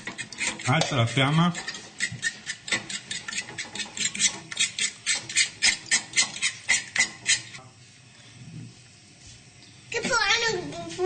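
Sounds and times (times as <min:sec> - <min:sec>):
fork scraping a frying pan: 0:00.0 - 0:07.6.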